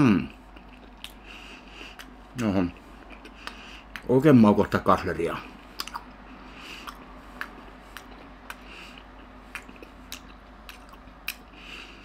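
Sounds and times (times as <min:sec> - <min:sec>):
man chewing with wet mouth sounds: 0:00.2 - 0:04.1, 0:05.4 - 0:12.0
sharp mouth click: 0:05.8 - 0:06.1.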